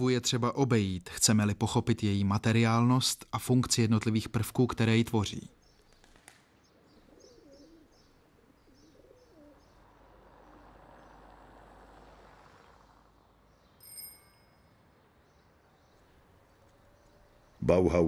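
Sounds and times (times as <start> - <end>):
small birds chirping: 1.3 - 14.2, 14.8 - 18.0
pigeon cooing: 6.9 - 10.8
bright metallic ring: 13.8 - 14.9.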